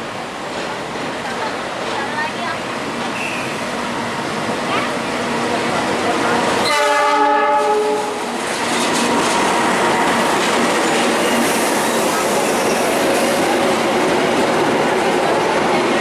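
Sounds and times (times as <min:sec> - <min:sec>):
train wheels on rails: 0:00.0 - 0:16.0
locomotive horn: 0:06.6 - 0:08.2.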